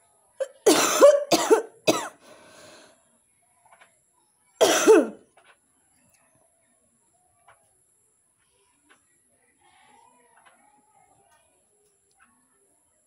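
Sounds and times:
woman coughing: 0.4s - 2.2s, 4.6s - 5.2s.

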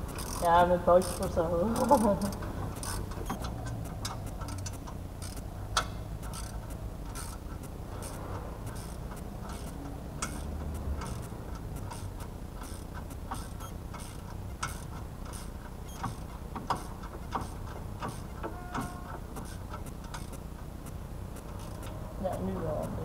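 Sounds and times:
ratchet wrench clicking: 0.0s - 23.0s
metal knocks: 16.0s - 19.5s.

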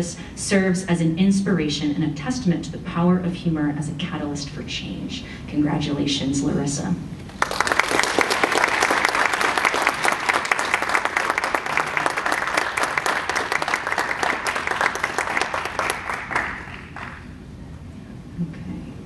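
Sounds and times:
audience applauding: 7.3s - 17.3s.

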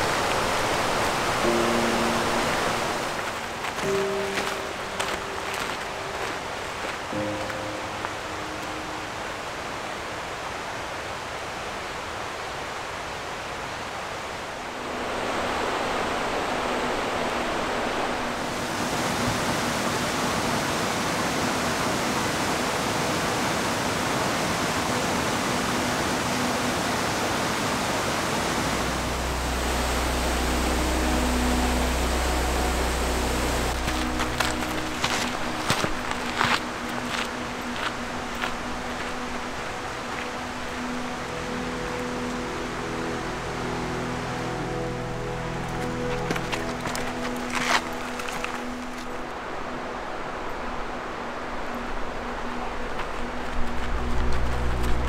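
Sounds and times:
creek rushing: 0.0s - 55.0s
low rumble: 53.3s - 55.0s.

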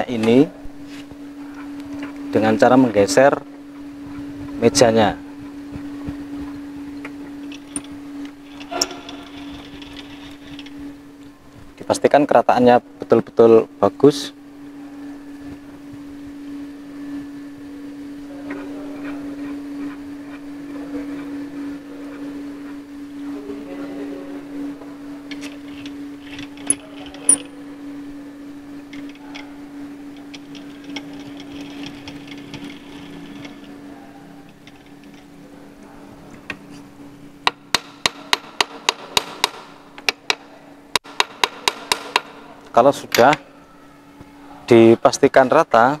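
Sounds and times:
milling machine humming: 0.0s - 46.0s
hammer tapping steel: 41.0s - 42.4s.

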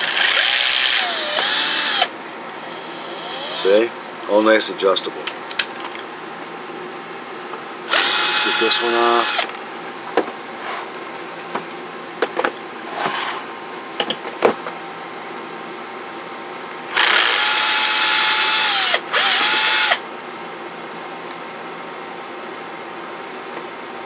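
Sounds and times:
electric screwdriver motor whine: 0.0s - 3.7s, 7.9s - 9.5s, 16.9s - 20.0s.

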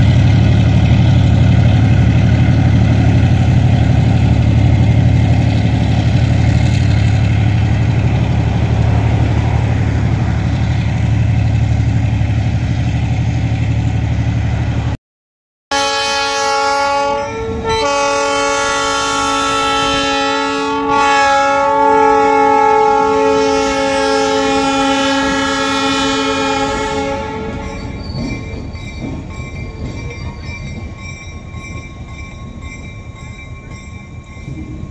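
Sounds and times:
locomotive engine: 0.0s - 15.0s, 16.1s - 34.9s
train wheels on rails: 0.0s - 15.0s, 22.2s - 34.9s
locomotive air horn chord: 15.7s - 28.0s.

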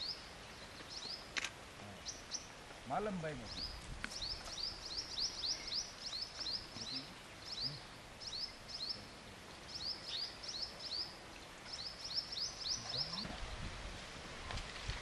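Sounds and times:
bird chirping: 0.0s - 1.3s, 1.9s - 2.6s, 3.4s - 13.3s.

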